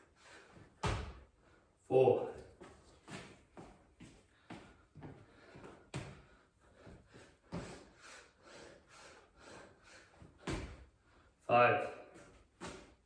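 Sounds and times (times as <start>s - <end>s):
person breathing hard: 0.0s - 0.8s, 4.0s - 11.4s.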